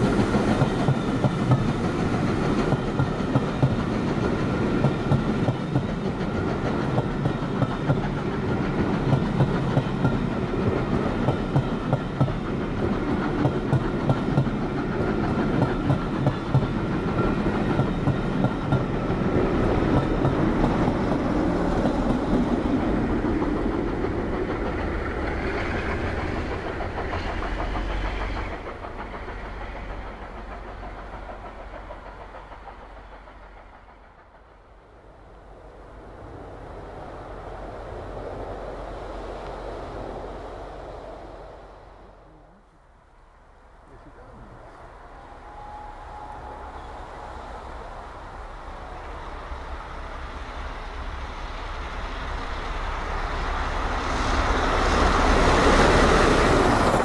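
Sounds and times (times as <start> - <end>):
train wheels clacking over rail joints: 0.0 - 34.9
diesel locomotive rumble: 0.0 - 57.0.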